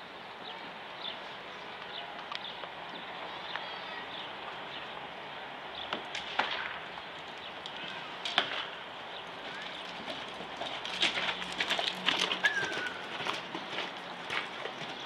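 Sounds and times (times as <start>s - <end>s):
horse hoofbeats on sand: 7.4s - 15.0s.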